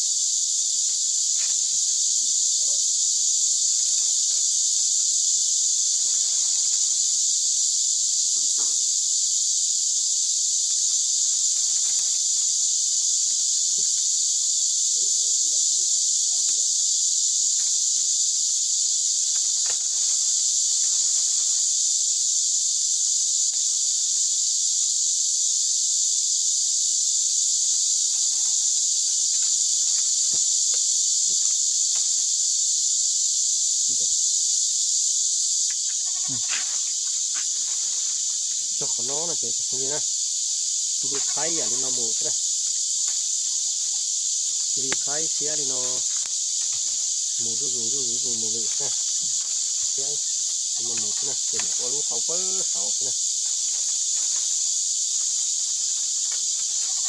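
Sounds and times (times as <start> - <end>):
insects chorus: 0.0 - 57.0
bamboo strips rustling and clicking: 3.5 - 5.1, 10.6 - 16.8, 17.4 - 21.8, 28.0 - 32.3, 35.6 - 39.8, 41.1 - 57.0.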